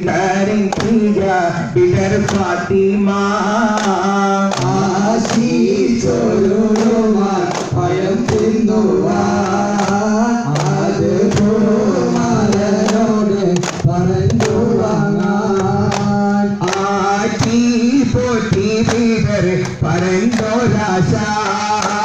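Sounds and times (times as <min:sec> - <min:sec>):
man singing devotional song: 0:00.0 - 0:22.0
frame drums struck by hand: 0:04.5 - 0:22.0.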